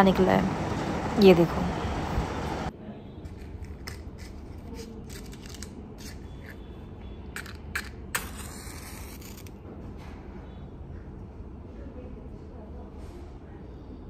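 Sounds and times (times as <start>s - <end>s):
small objects clicking and tapping: 7.3s - 8.4s.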